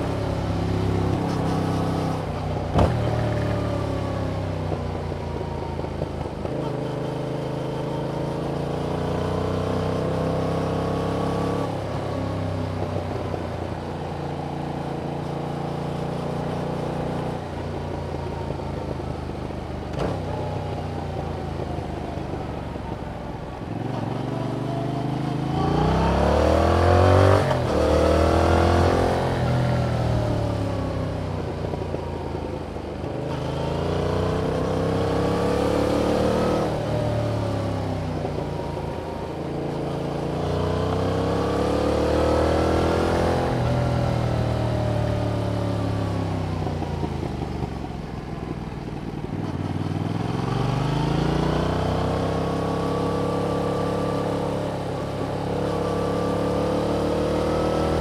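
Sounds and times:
motorcycle engine revving: 0.0 - 13.7, 23.8 - 32.2, 33.1 - 48.6, 49.2 - 58.0.

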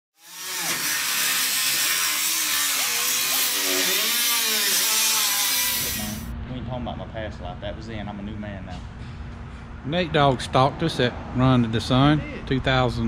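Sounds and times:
power tool hissing steadily: 0.2 - 6.3.

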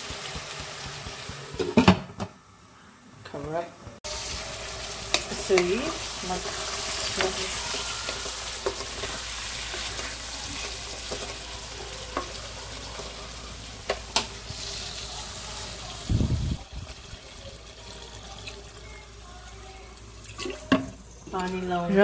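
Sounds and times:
meat sizzling in a pan: 0.0 - 1.6, 4.0 - 21.2
spatula scraping a pan: 4.1 - 12.4.

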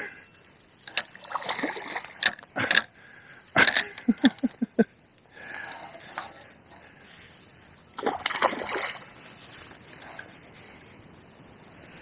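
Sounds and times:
fish splashing at water surface: 8.0 - 9.1.

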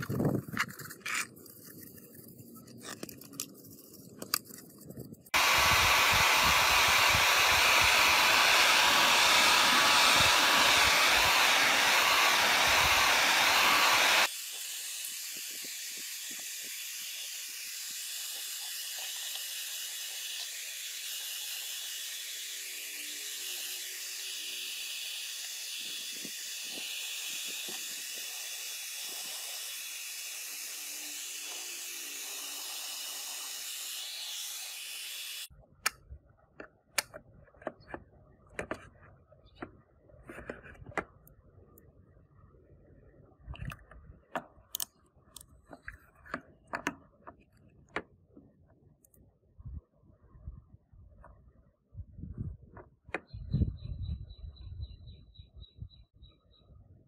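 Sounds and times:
hair dryer blowing: 5.4 - 35.5.

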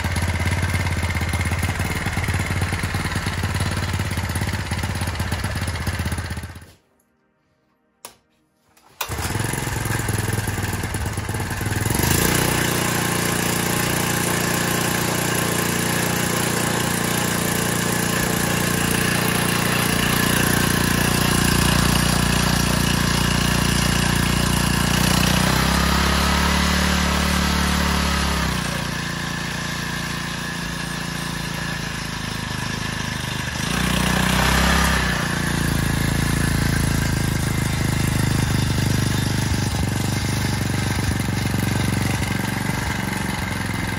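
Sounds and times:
outboard motor running: 0.0 - 6.6, 9.0 - 43.9
outboard motor pull-start: 8.8 - 33.0.

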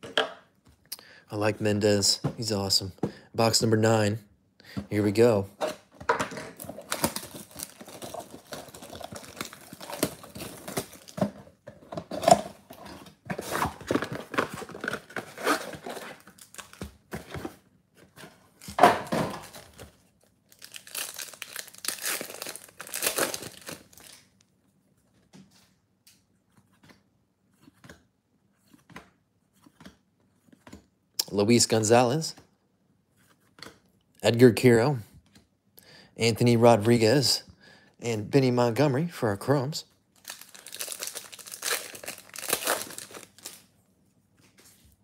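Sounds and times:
wrappers ripping and crinkling: 6.6 - 11.2, 20.5 - 24.3, 40.2 - 43.7.

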